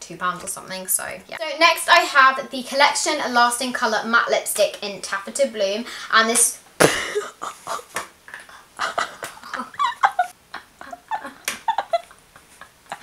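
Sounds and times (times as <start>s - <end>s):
girl giggling: 6.8s - 13.0s.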